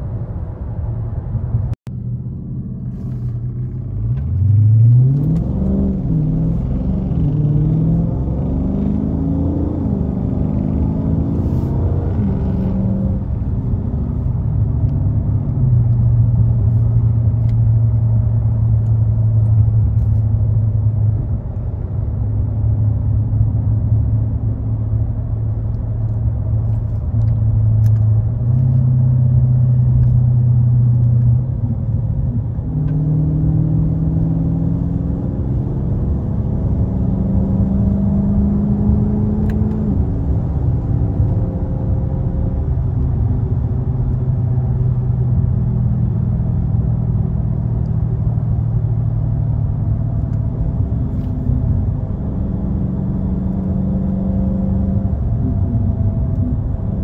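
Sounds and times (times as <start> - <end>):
car engine cruising: 0.0 - 57.0
low road rumble: 0.0 - 57.0.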